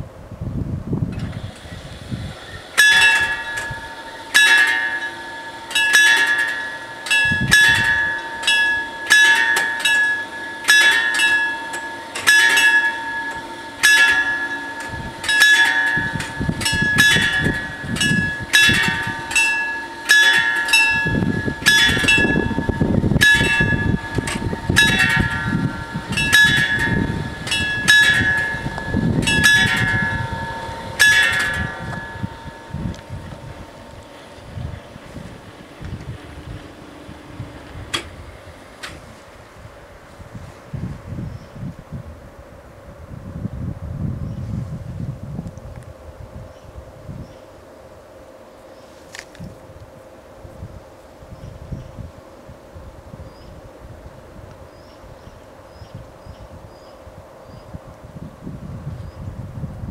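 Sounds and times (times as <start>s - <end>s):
level crossing bells clanging: 2.8s - 34.4s
low rumble: 13.0s - 59.9s.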